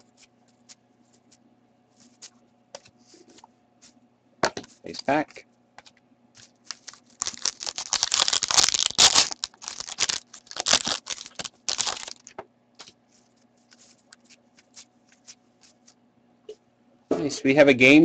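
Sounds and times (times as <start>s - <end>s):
cards being handled: 5.8s - 16.0s
wrapper tearing and crinkling: 6.4s - 13.0s.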